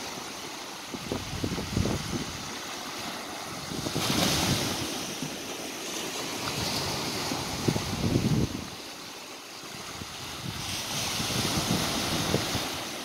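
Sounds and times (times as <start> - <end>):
waves washing over rocks: 0.0 - 13.0
wind buffeting microphone: 0.8 - 2.6, 3.5 - 5.4, 6.5 - 8.8, 9.7 - 13.0.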